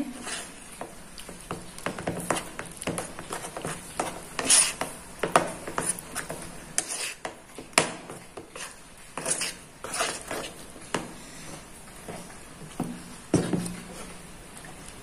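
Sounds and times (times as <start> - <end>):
spoon scraping ceramic bowl: 5.7 - 7.3, 8.5 - 10.6.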